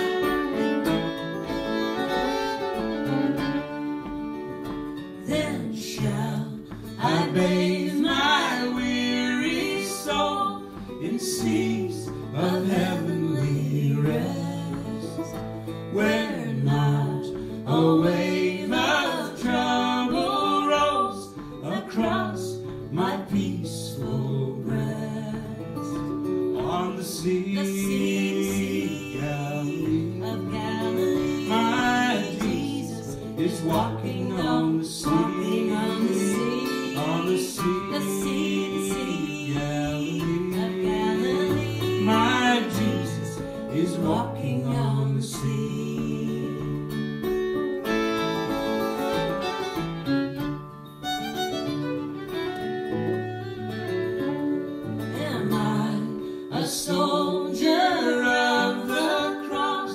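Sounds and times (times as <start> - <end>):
fiddle: 0.0 - 56.6
acoustic guitar: 0.0 - 59.9
woman and man singing: 4.9 - 48.6, 54.2 - 59.9.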